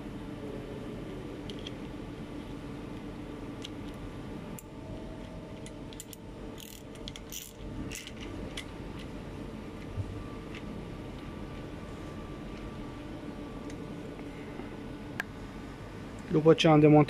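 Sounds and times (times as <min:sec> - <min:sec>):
steady low hum: 0:00.0 - 0:17.0
ratcheting wrench clicking: 0:05.9 - 0:08.2.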